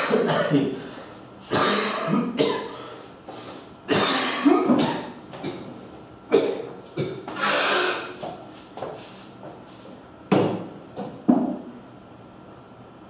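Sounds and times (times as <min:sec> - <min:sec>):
man coughing: 0:00.0 - 0:00.9, 0:01.5 - 0:03.0, 0:03.9 - 0:05.6, 0:06.3 - 0:08.1.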